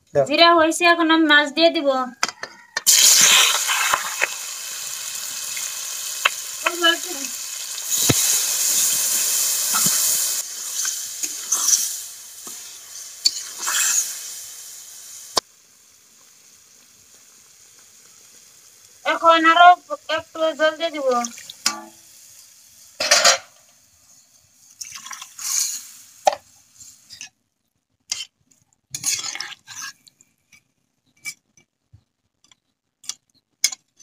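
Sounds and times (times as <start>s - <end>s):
fish frying in hot oil: 2.9s - 27.3s.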